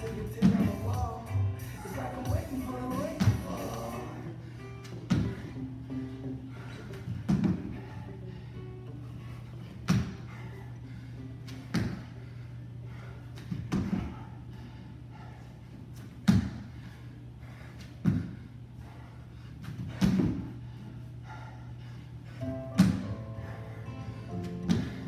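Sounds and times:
steady low hum: 0:00.0 - 0:25.0.

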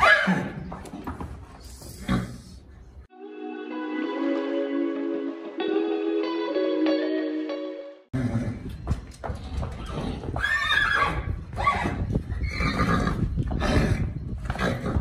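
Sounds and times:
hooves clopping on hard floor: 0:00.6 - 0:02.0, 0:08.5 - 0:10.6
horses neighing: 0:08.2 - 0:15.0.

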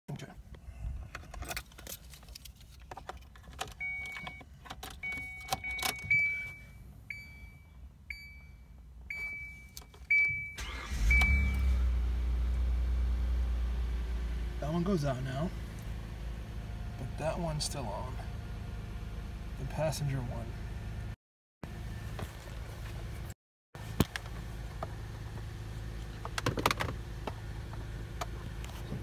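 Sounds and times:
dashboard chime beeping: 0:05.0 - 0:11.6
car engine starting and idling: 0:09.0 - 0:29.0.

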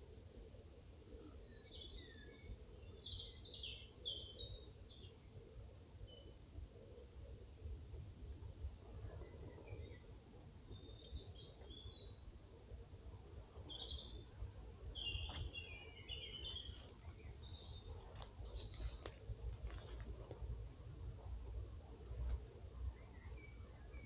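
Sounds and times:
small birds chirping: 0:01.1 - 0:06.4, 0:09.1 - 0:12.3, 0:13.4 - 0:20.5
steady low rumble: 0:12.3 - 0:23.9.

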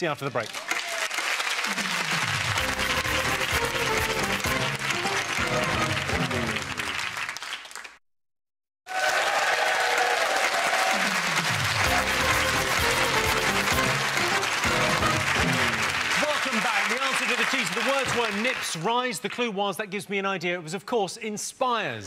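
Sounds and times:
audience applauding: 0:00.4 - 0:08.0, 0:08.9 - 0:19.4
upbeat show music: 0:01.6 - 0:07.4, 0:11.0 - 0:18.6.

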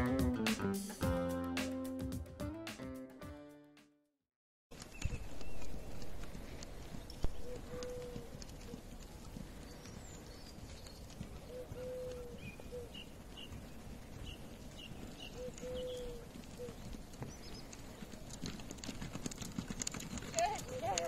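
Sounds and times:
horse hooves knocking on ground: 0:04.7 - 0:21.0.

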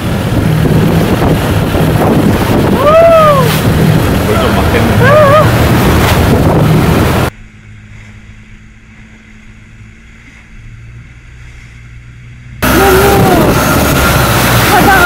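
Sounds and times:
boat engine running: 0:00.0 - 0:15.0
rushing water: 0:00.0 - 0:15.0
wind buffeting microphone: 0:00.0 - 0:15.0.

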